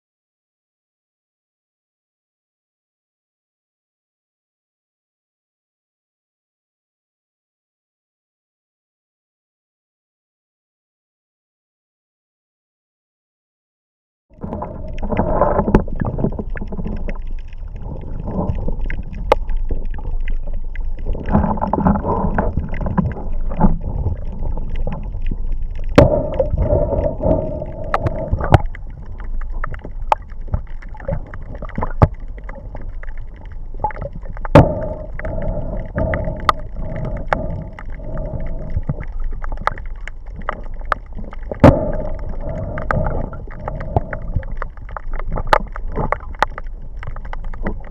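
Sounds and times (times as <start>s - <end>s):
muffled underwater sloshing: 14.4s - 47.9s
sharp underwater clicks: 14.4s - 47.9s.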